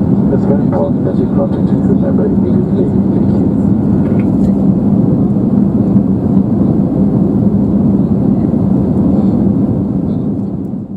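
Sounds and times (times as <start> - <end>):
airplane cabin engine roar: 0.0 - 10.9.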